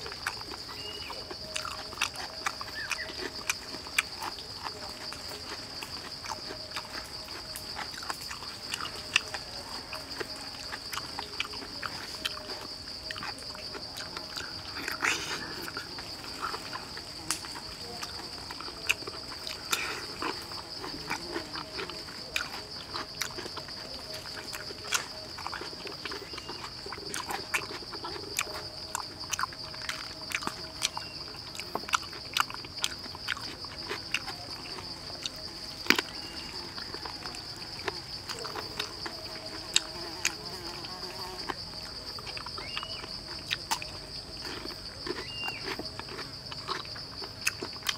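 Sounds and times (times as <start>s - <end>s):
chewing and lip-smacking: 0.0s - 47.9s
high-pitched insect buzz: 39.0s - 43.1s.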